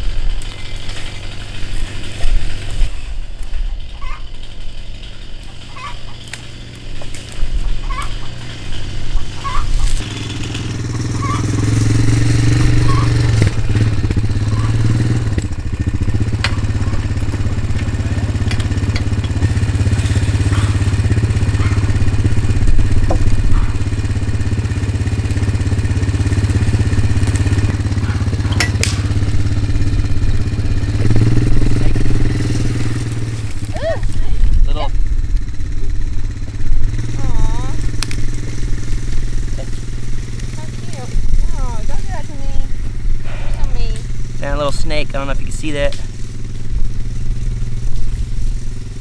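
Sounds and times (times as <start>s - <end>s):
engine idling: 0.0s - 49.0s
sharp clicks and knocks: 17.3s - 19.6s, 27.2s - 29.2s.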